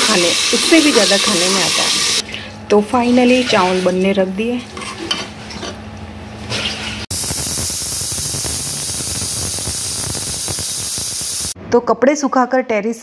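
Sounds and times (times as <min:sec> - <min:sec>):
steam hissing from pressure cooker: 0:00.0 - 0:02.2, 0:07.1 - 0:11.6.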